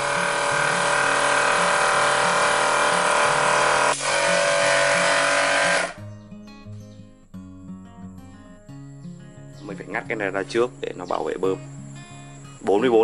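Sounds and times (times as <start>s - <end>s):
air compressor running: 0.0s - 6.0s.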